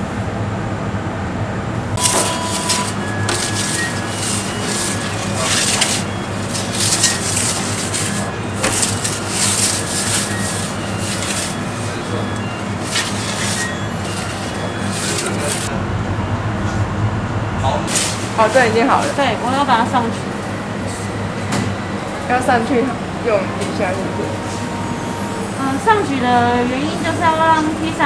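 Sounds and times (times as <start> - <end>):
steady low hum: 0.0 - 28.0
metal peel scraping stone: 2.0 - 15.7.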